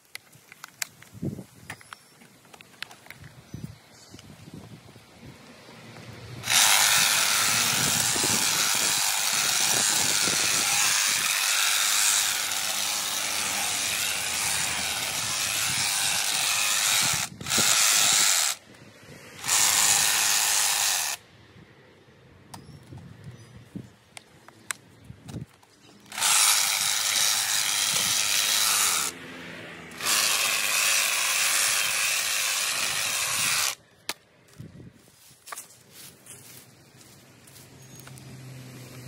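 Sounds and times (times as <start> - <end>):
hedge trimmer cutting: 6.4 - 18.6, 19.3 - 21.2, 26.0 - 33.8.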